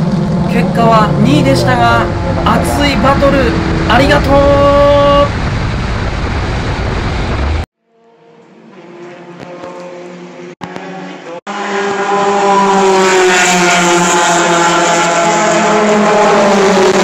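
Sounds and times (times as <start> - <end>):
distant race car engines: 0.0 - 5.5, 8.2 - 17.0
race car engine and wind inside car: 0.0 - 5.6, 10.6 - 17.0.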